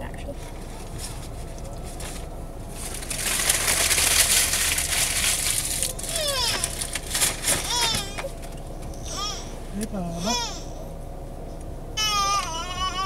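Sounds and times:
paper wrapper crinkling: 0.5 - 8.5
baby squealing: 6.1 - 6.8, 7.6 - 8.3, 9.0 - 9.6, 12.0 - 13.0.

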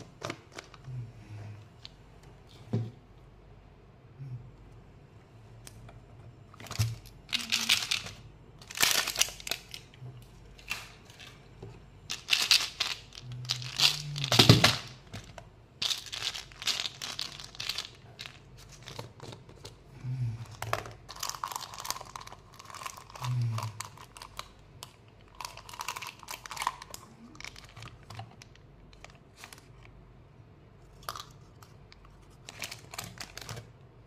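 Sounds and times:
plastic packaging crinkling and tearing: 6.6 - 10.0, 20.5 - 24.5, 25.3 - 29.9, 31.0 - 33.8.

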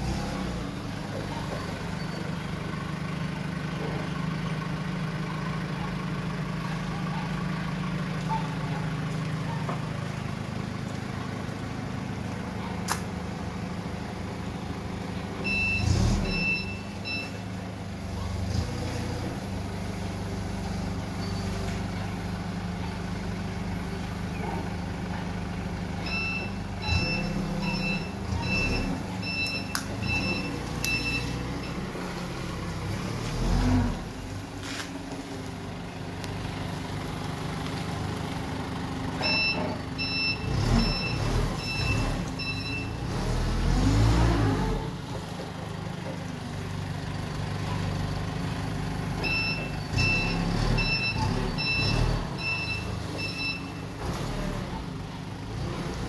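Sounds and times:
forklift engine running: 0.0 - 56.0
reversing alarm beeping: 15.4 - 17.4, 26.0 - 31.9, 39.2 - 43.1, 49.2 - 53.9.

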